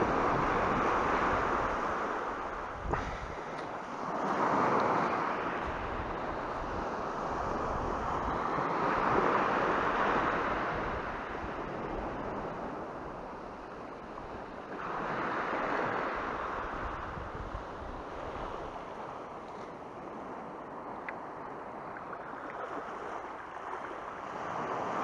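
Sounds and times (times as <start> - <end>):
small waves on a pebbly beach: 0.0 - 25.0.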